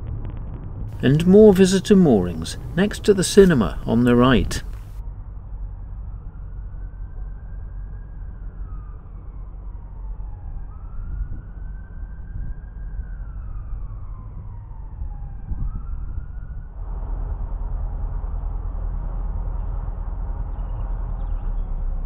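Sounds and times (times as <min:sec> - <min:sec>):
boat engine rumbling: 0:01.0 - 0:04.9
emergency siren wailing: 0:06.0 - 0:21.4.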